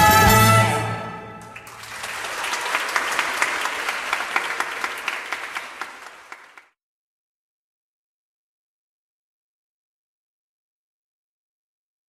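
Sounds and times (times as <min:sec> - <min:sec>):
audience applauding: 0:01.4 - 0:06.8.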